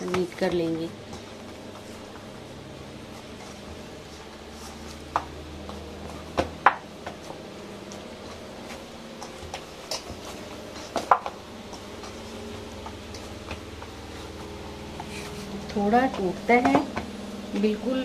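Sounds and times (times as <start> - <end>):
hands kneading dough: 0.0 - 18.0.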